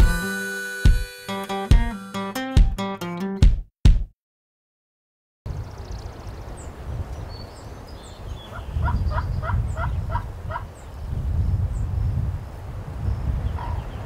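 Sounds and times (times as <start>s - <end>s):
faint songbird chirps: 5.5s - 10.1s
wind rumble on microphone: 5.5s - 14.0s.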